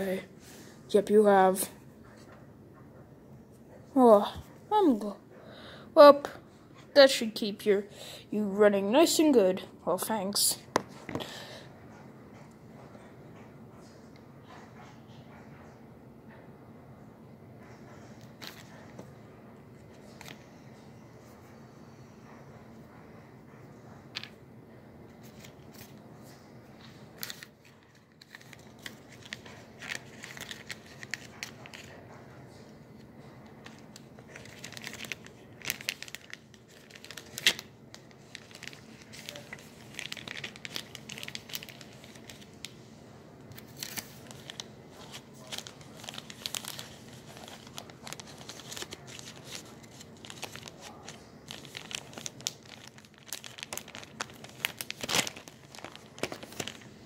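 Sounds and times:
crinkling and rustling: 0:18.1 - 0:19.1, 0:25.1 - 0:42.8, 0:43.4 - 0:57.0.

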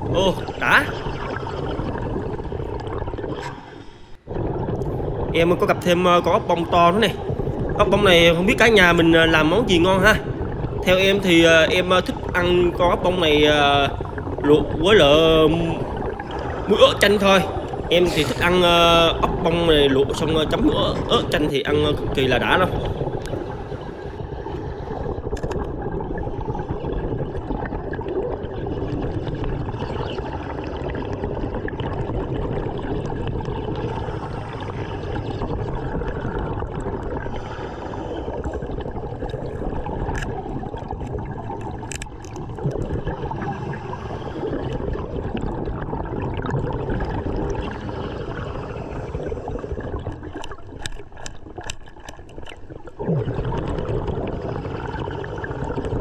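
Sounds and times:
underwater breathing bubbles: 0:00.0 - 0:56.0
small sharp clicks: 0:41.8 - 0:42.4.

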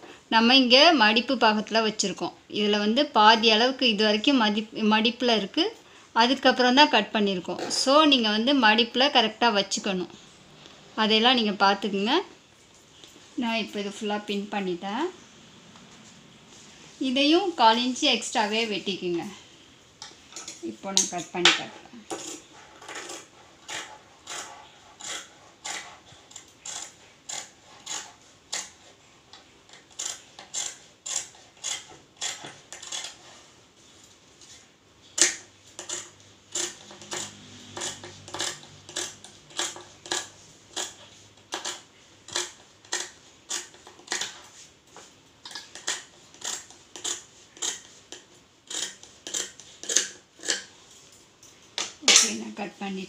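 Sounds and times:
scissors snipping fabric: 0:35.2 - 0:44.4.

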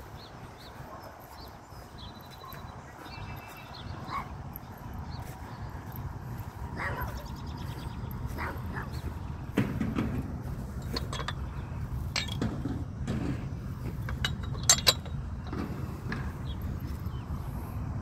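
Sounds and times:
chain-link fence rattling: 0:07.7 - 0:17.2.

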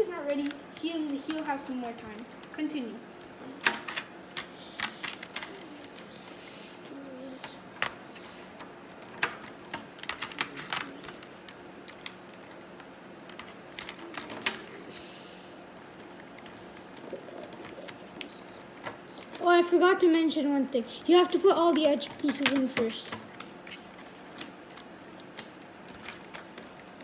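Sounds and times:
plastic cube pieces clicking: 0:21.3 - 0:27.0.

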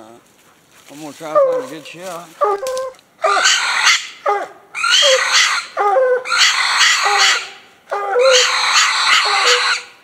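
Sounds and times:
hound barking: 0:02.4 - 0:09.9.

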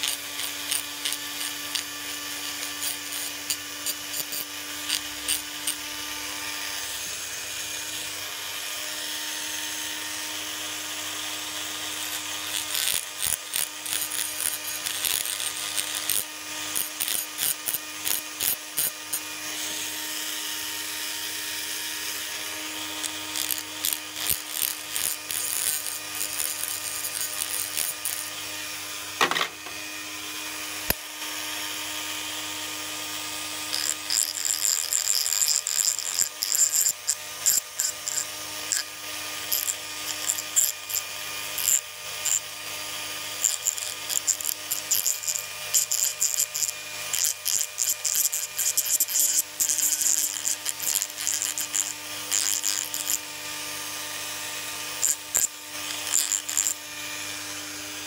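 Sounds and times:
stone grinding against steel: 0:00.0 - 0:07.1, 0:11.7 - 0:19.9, 0:22.7 - 0:28.4, 0:33.6 - 0:42.5, 0:43.2 - 0:58.0
rotary tool motor humming: 0:00.0 - 0:58.0.

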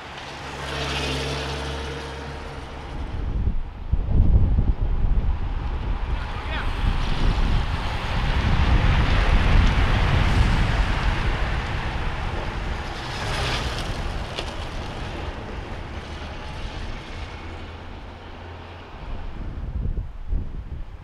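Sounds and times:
bicycles rushing past: 0:00.0 - 0:21.0
tyre hiss and wind: 0:00.0 - 0:21.0.

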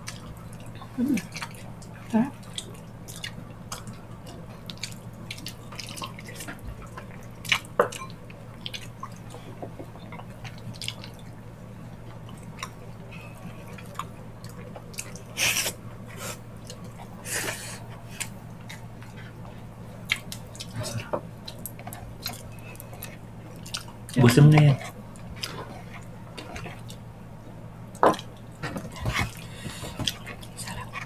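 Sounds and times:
longer wet sounds: 0:00.0 - 0:28.6
mouths chewing and smacking: 0:00.0 - 0:31.0
steady low hum: 0:00.0 - 0:31.0.

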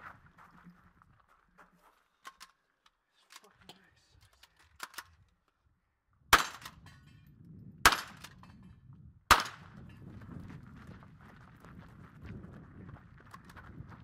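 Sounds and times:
rifle shots cracking: 0:06.3 - 0:06.8, 0:07.9 - 0:08.4, 0:09.3 - 0:09.7.

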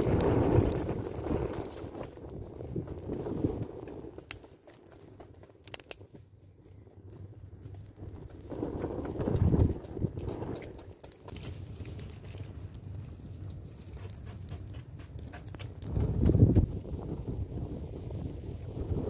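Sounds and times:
low rushing of fire: 0:00.0 - 0:19.0
wood fire crackling: 0:00.0 - 0:19.0.

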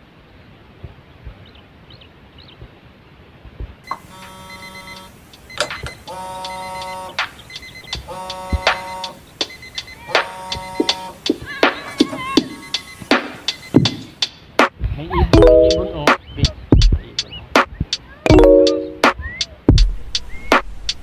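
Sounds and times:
wind noise on microphone: 0:00.7 - 0:01.6, 0:02.6 - 0:03.9, 0:10.5 - 0:15.4, 0:16.2 - 0:18.3
synth chords: 0:15.4 - 0:16.2, 0:18.3 - 0:19.2.

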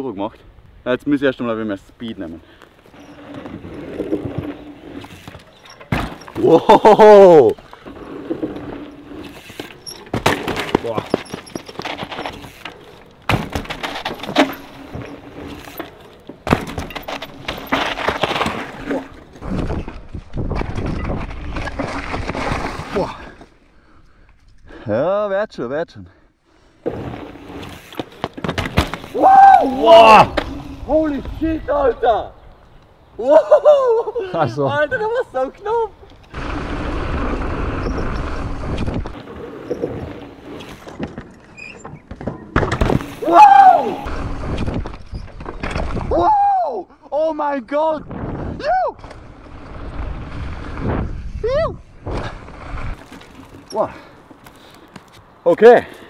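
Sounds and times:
mountain bike rattling: 0:02.8 - 0:23.4, 0:34.8 - 0:46.2, 0:49.0 - 0:55.0.

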